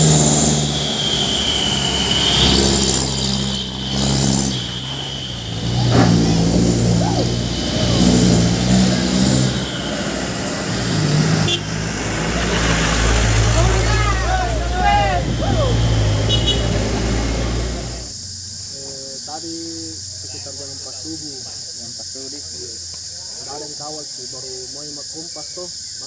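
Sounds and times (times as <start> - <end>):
truck diesel engines labouring: 0.0 - 26.0.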